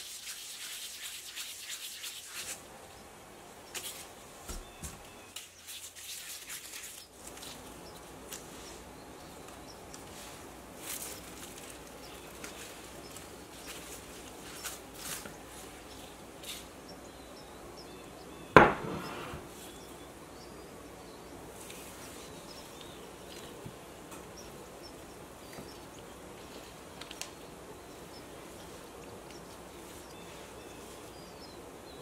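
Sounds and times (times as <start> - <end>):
glass mug set down: 18.6 - 19.4.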